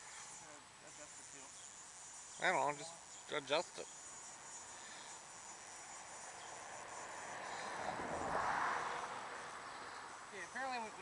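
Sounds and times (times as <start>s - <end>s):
fishing reel drag buzzing: 0.0s - 7.9s
insects chirping: 0.0s - 11.0s.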